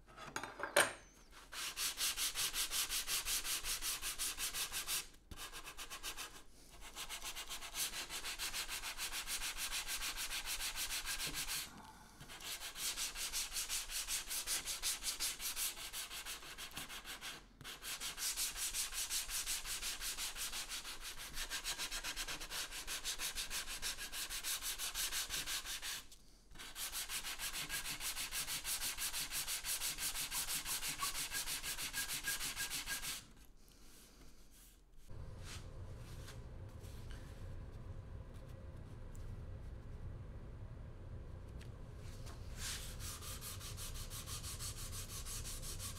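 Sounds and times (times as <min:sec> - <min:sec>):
sandpaper rasping on board: 0:01.4 - 0:11.7, 0:12.3 - 0:33.3, 0:42.6 - 0:45.9.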